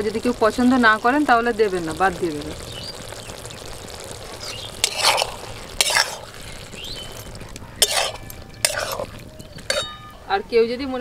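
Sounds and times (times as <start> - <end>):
metal spatula scraping a pan: 4.3 - 10.2.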